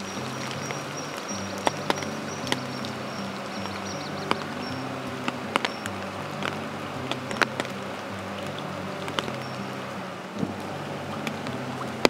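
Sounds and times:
sharp ticks: 0:00.0 - 0:07.8
thin high chirping: 0:00.0 - 0:10.1
soft background music: 0:00.0 - 0:12.0.

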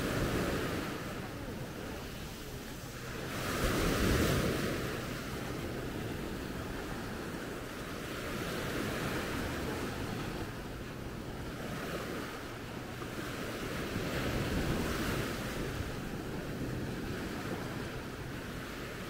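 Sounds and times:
small waves breaking on beach: 0:00.0 - 0:19.0
wind rumbling on microphone: 0:00.0 - 0:19.0.

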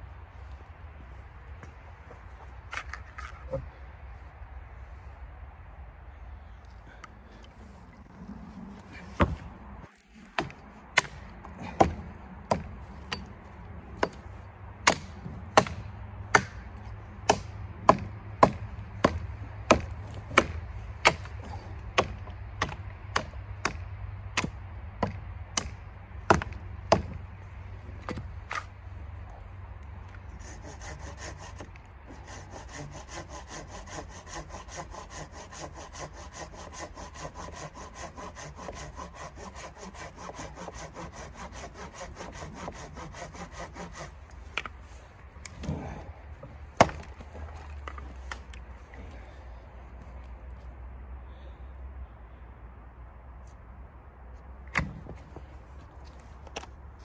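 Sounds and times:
hatchet chopping branches: 0:09.1 - 0:28.7, 0:30.0 - 0:44.8, 0:45.4 - 0:48.7, 0:54.7 - 0:55.4
pruning saw cutting branch: 0:30.4 - 0:44.8.

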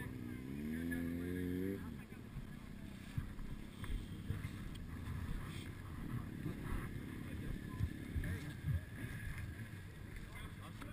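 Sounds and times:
wind buffeting microphone: 0:02.2 - 0:10.7.

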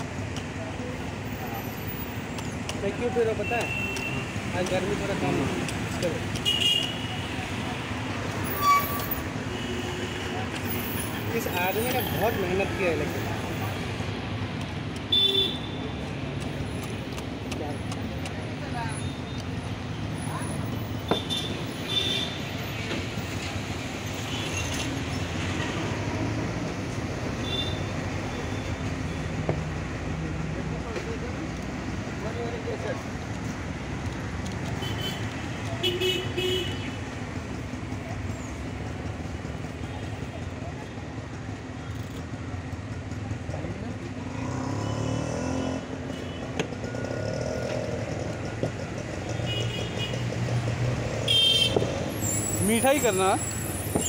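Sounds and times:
road noise: 0:00.0 - 0:54.0
street traffic rumble: 0:00.0 - 0:54.0
vehicle engines idling: 0:28.5 - 0:44.7.

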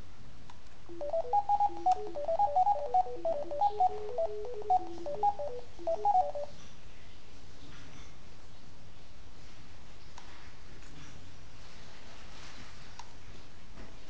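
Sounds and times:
phone ringtone beeping melody: 0:00.9 - 0:06.5.

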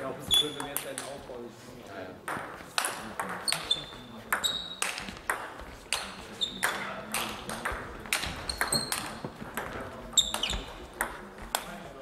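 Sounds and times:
shoe squeaks: 0:00.2 - 0:00.7, 0:03.4 - 0:04.9, 0:06.0 - 0:06.8, 0:08.4 - 0:09.2, 0:10.1 - 0:10.8.

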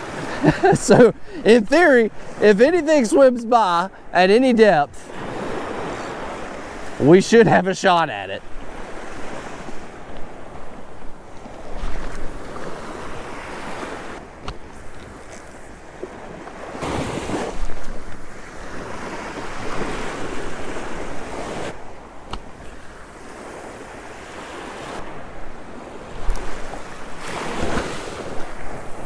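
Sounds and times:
surf waves washing on sand: 0:00.0 - 0:29.0
wind on microphone: 0:08.4 - 0:29.0.

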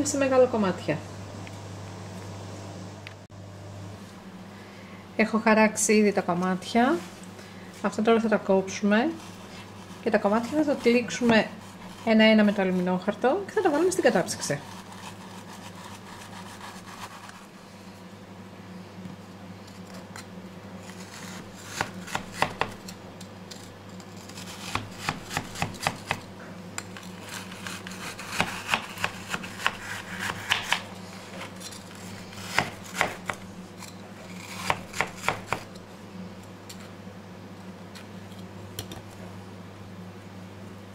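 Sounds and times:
steady low hum: 0:00.0 - 0:40.9
knife crunching through frozen block: 0:20.8 - 0:22.8, 0:27.0 - 0:35.7.

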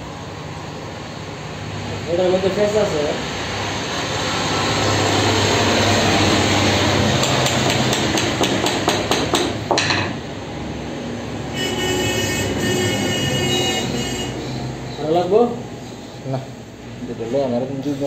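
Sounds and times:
workshop machine noise: 0:00.0 - 0:18.0
hammer tapping wooden block: 0:07.2 - 0:09.9.

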